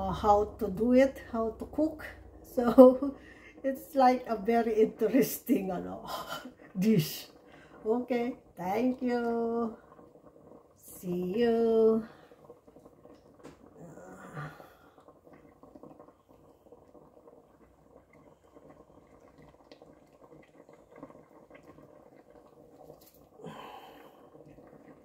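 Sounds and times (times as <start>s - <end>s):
fish simmering in sauce: 0.0s - 25.0s.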